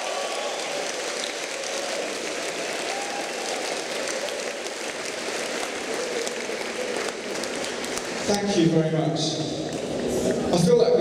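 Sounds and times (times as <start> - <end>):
crowd applause: 0.0 - 8.8.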